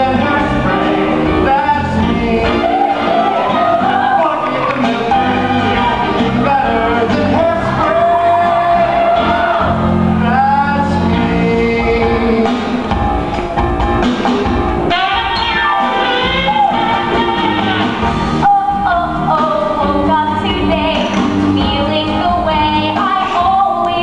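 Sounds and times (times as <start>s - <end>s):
mixed choir singing: 0.0s - 12.9s
instrumental accompaniment: 0.0s - 24.0s.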